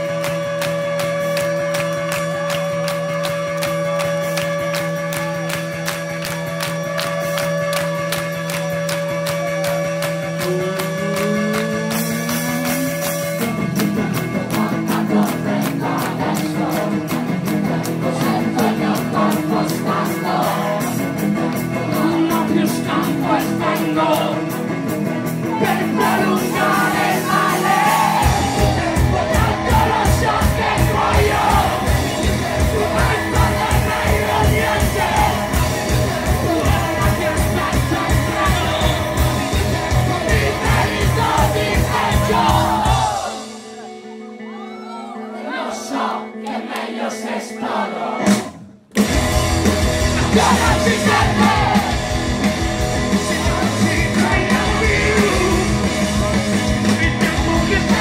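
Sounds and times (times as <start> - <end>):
rock band playing live: 0.0 - 58.0
lead singer singing: 13.2 - 44.0, 49.8 - 58.0
bass and kick drum pulse: 24.8 - 43.4, 48.9 - 58.0
crowd shouting along: 25.4 - 48.6, 50.0 - 52.4.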